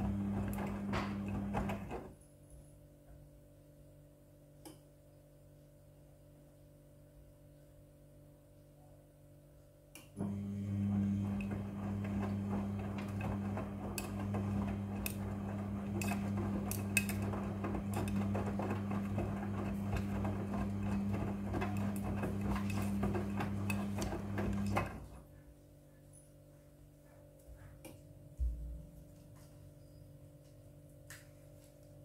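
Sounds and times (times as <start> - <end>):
washing machine motor humming: 0.0 - 2.1, 10.2 - 25.3.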